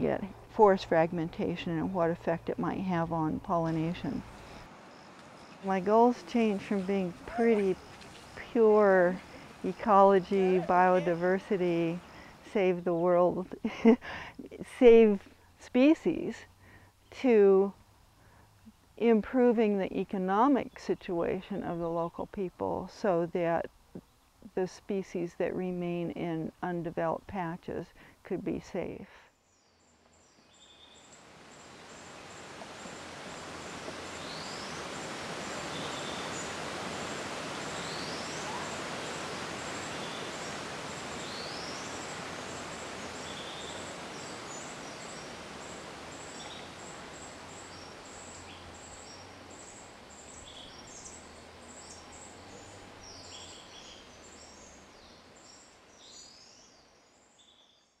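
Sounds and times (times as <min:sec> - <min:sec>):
rushing stream: 0:04.2 - 0:12.5, 0:31.1 - 0:55.4
bird rising call: 0:31.6 - 0:49.2.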